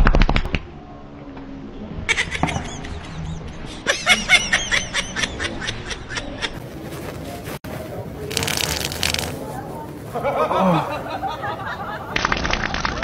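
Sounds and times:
person laughing: 2.1 - 6.6, 10.1 - 12.0.

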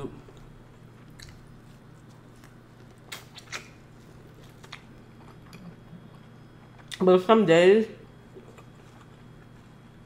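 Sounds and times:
faint low hum: 0.0 - 10.0
mouth smacks while eating: 3.0 - 3.8
wet clicks of biting: 3.1 - 3.8.

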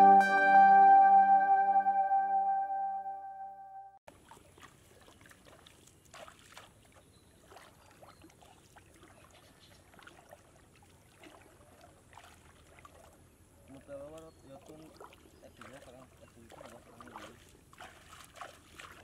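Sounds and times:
water splashing and trickling: 4.1 - 19.0.

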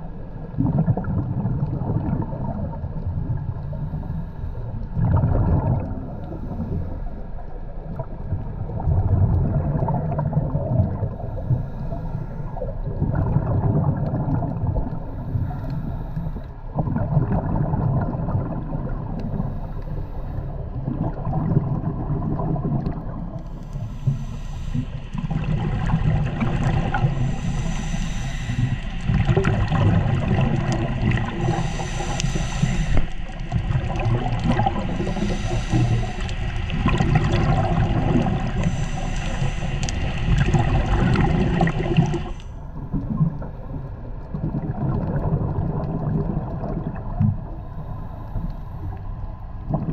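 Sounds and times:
steady low rumble: 0.0 - 49.9
underwater bubbles gurgling: 0.0 - 49.9
hissing bubble bursts: 23.8 - 42.4.

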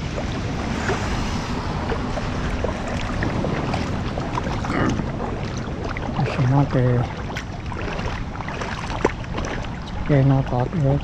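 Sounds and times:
low hum: 0.0 - 6.3.

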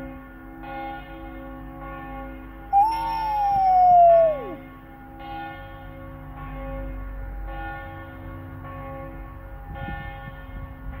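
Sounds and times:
church bells ringing: 0.0 - 11.0.

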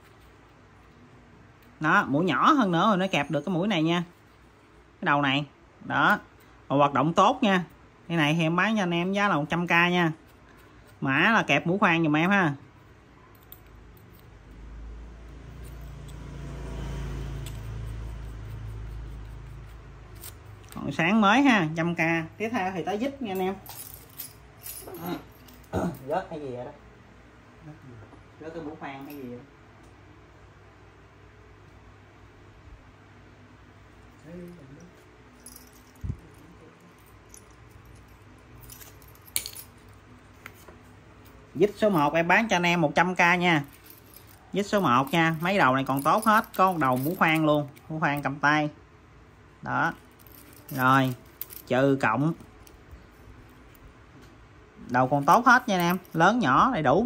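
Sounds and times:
passing vehicle engine rumble: 14.6 - 20.0
metal hand tools clinking: 34.5 - 40.0, 43.4 - 48.3, 50.0 - 52.8, 55.0 - 56.3.

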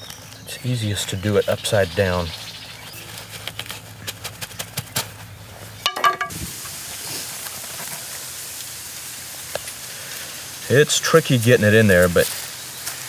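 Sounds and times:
cloth rustling against bamboo: 0.0 - 8.3.

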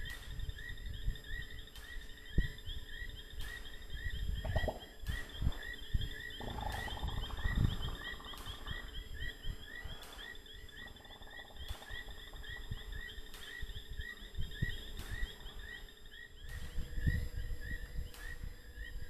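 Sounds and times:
high-pitched chirping calls: 4.1 - 17.2.

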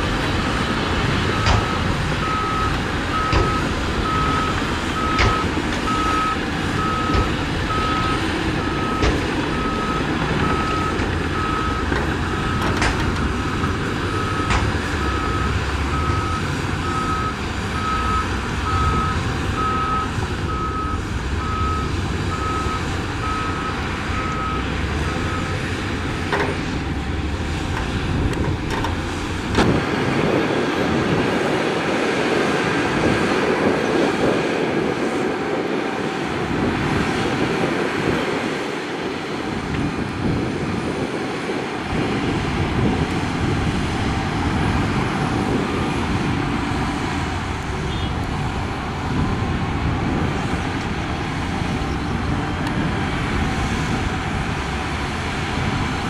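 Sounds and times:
heavy machinery engine running: 0.0 - 56.0
reversing alarm beeping: 0.5 - 13.4, 14.1 - 25.8.

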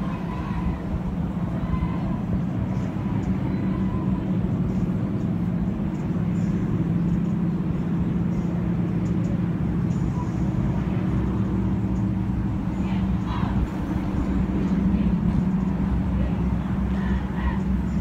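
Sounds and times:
road and engine drone in car: 0.0 - 18.0.

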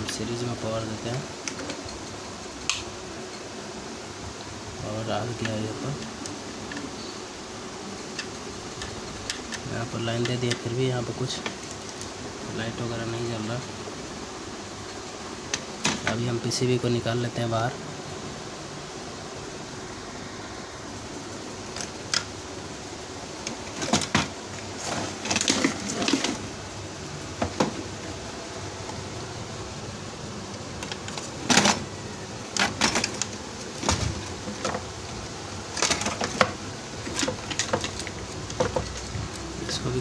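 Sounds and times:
steady room hum: 0.0 - 40.0
plastic parts clicking and rattling: 23.4 - 26.5, 30.8 - 31.8, 32.5 - 35.0, 35.7 - 39.8.

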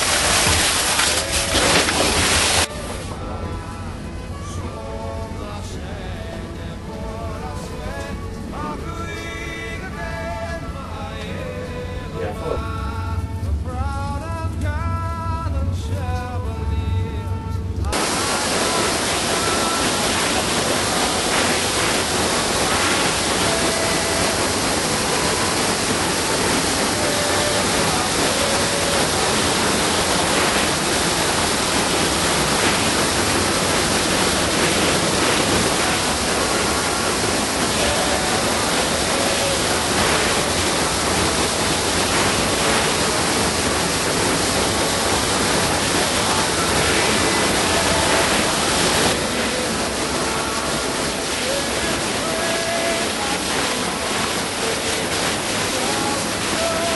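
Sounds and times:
waterfall crashing: 0.0 - 2.7, 17.9 - 56.9.

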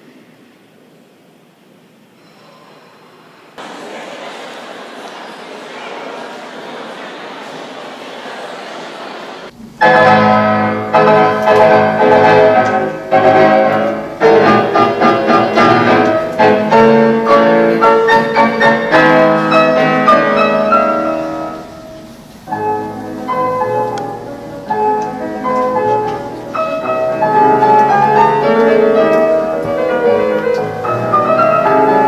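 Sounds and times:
classical piano music: 9.4 - 32.0.

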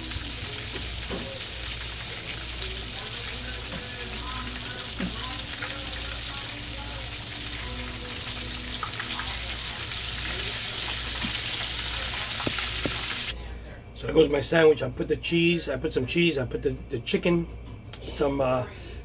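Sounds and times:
oil sizzling in a skillet: 0.0 - 13.3.

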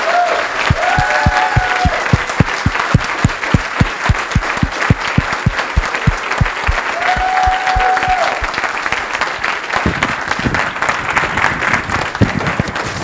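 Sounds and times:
audience applauding: 0.0 - 13.0
loud claps close by: 0.0 - 13.0.

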